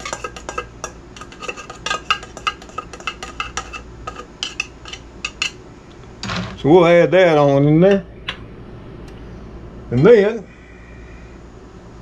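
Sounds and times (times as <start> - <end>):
spoon stirring dry kibble: 0.0 - 5.6.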